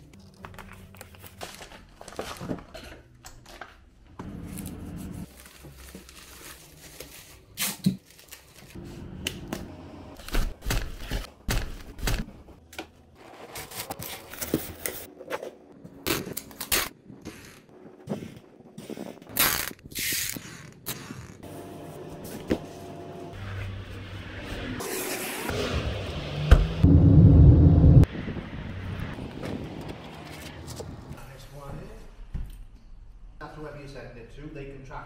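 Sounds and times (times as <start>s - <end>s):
plastic wrapping crinkling: 0.0s - 2.8s, 4.4s - 8.8s
packing tape tearing off roll: 5.3s - 8.8s, 16.0s - 17.7s, 19.3s - 21.4s.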